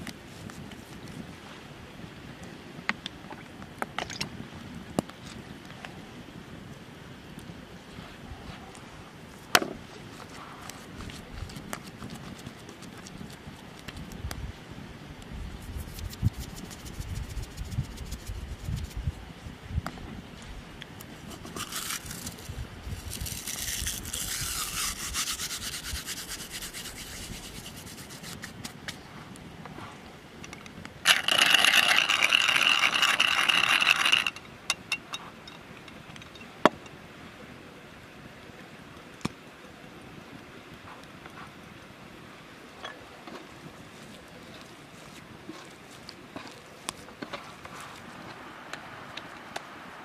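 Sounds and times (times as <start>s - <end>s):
seasoning sprinkled with light hiss: 15.3s - 19.2s, 21.0s - 29.9s
pepper mill grinding: 21.4s - 28.4s, 31.1s - 34.4s.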